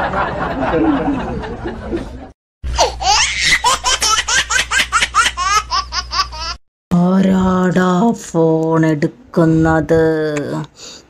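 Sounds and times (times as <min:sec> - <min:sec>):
child laughing: 0:02.7 - 0:06.6.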